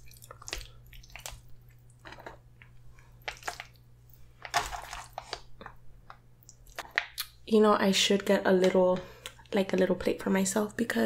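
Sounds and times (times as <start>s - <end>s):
wet squishes of spaghetti: 0.0s - 5.8s.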